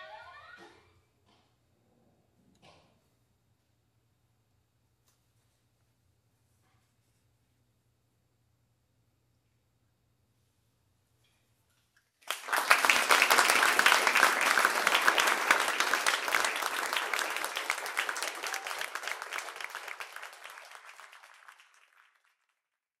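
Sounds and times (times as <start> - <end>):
audience applause: 12.2 - 23.0.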